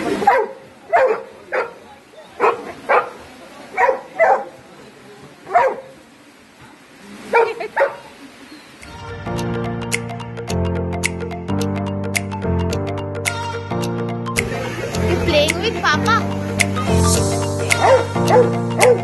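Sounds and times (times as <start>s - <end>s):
dog barking: 0.2s - 1.8s, 2.4s - 4.5s, 5.5s - 5.9s, 7.3s - 8.1s, 17.7s - 19.0s.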